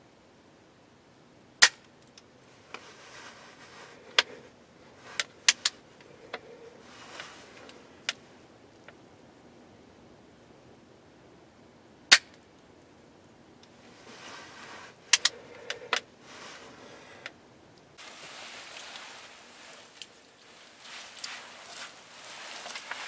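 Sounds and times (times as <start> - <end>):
faint rustling: 2.4 - 8.5, 13.7 - 17.4, 18.0 - 23.0.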